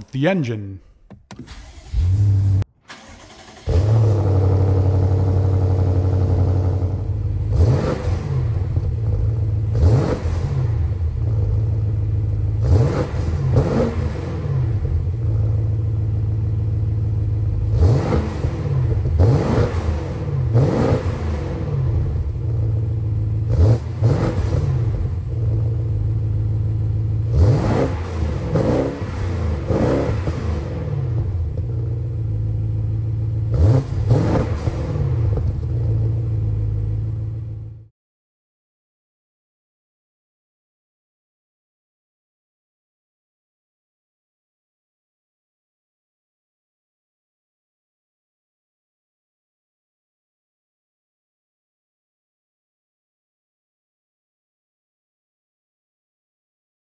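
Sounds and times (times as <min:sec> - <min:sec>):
car engine starting and idling: 0:00.0 - 0:37.9
engine revving in throttle blips: 0:01.5 - 0:37.7.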